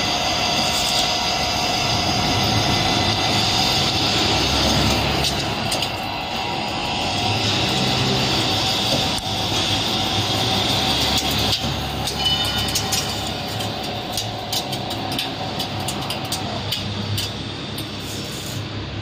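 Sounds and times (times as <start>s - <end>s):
lathe running with hum: 0.0s - 19.0s
steady whine: 0.0s - 19.0s
sharp metallic ticks: 11.1s - 18.0s.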